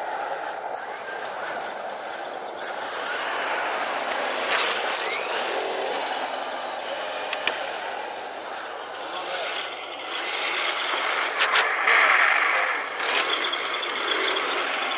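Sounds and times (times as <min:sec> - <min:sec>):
toy tank motors whirring: 0:00.0 - 0:14.9
sharp click: 0:07.2 - 0:07.6.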